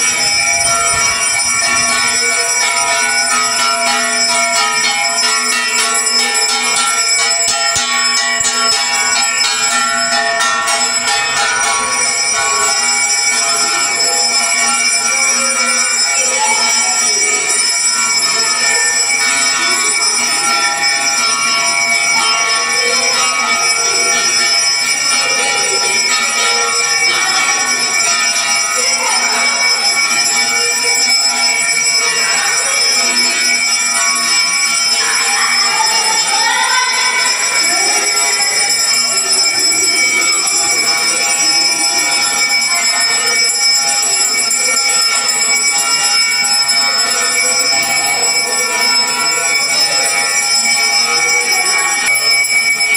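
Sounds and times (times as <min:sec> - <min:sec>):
temple bells ringing: 0:00.0 - 0:52.9.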